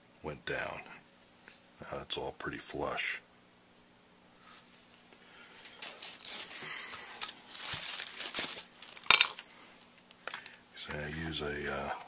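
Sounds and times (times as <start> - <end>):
plastic bag crinkling: 5.6 - 10.5.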